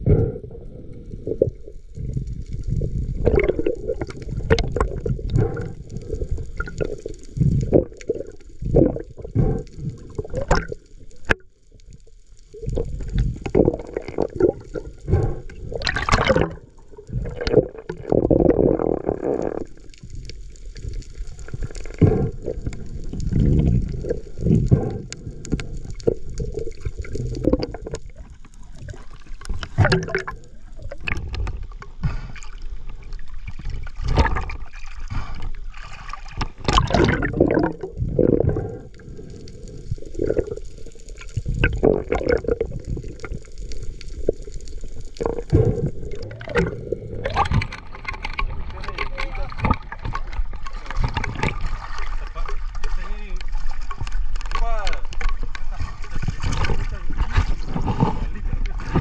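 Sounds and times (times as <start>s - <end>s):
seawater sloshing and gurgling: 0.0s - 11.4s, 12.4s - 59.0s
sharp water splashes: 15.8s - 16.7s, 29.4s - 30.4s, 33.9s - 37.9s.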